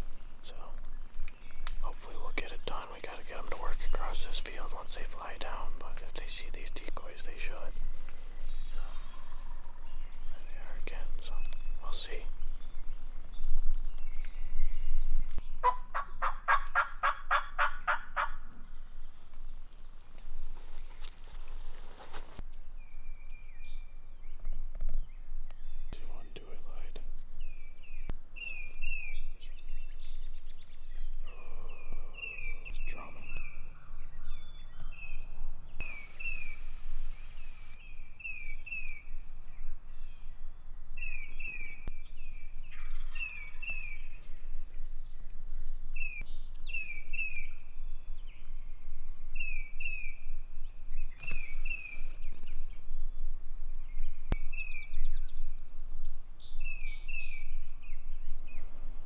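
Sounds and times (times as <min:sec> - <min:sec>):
small birds chirping: 0:00.0 - 0:16.2, 0:22.4 - 0:59.0.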